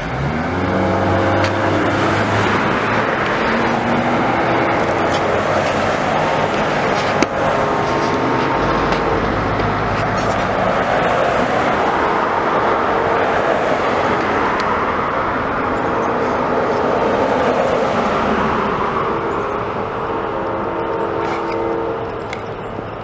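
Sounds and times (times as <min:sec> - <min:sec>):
passenger train passing: 0:00.0 - 0:23.0.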